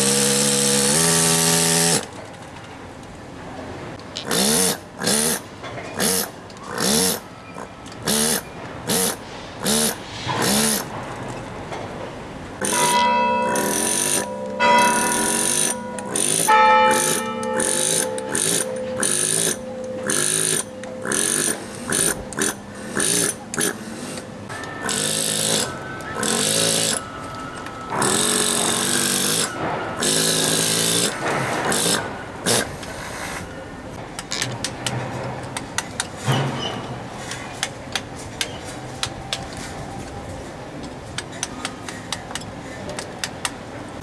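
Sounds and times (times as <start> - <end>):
pneumatic hammer chiselling stone: 0.0 - 2.1, 4.2 - 10.9, 12.6 - 27.0, 28.0 - 33.4.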